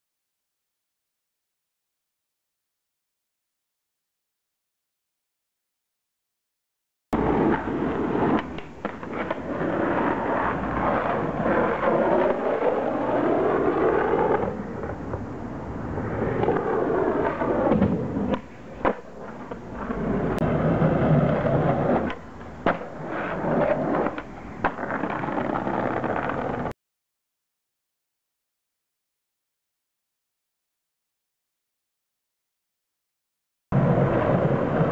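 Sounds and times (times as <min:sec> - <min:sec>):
skate wheels rolling on asphalt: 0:07.2 - 0:26.8, 0:33.7 - 0:34.9
skateboard landing knocks: 0:21.4 - 0:23.0.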